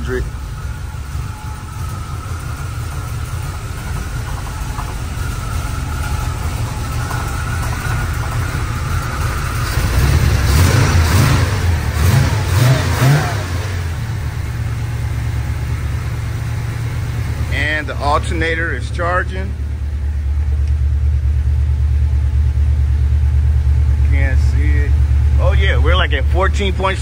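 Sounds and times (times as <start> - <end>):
engine revving: 0.0 - 15.6
car engine idling: 0.0 - 27.0.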